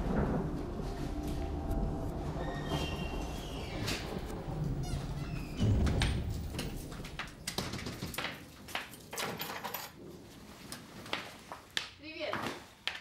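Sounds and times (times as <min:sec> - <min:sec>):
front door shutting: 0:00.0 - 0:08.2.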